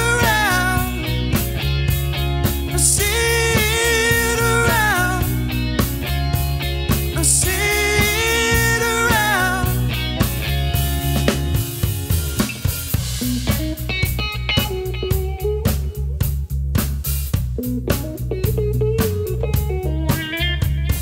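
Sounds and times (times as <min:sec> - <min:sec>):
sliding lead melody: 0:00.0 - 0:16.4
bass line: 0:00.0 - 0:21.0
drums: 0:00.0 - 0:21.0
funk band playing: 0:00.0 - 0:21.0.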